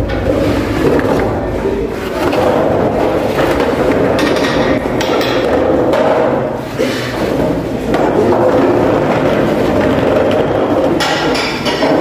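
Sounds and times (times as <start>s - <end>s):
desks and chairs scraping floor: 0.0s - 12.0s.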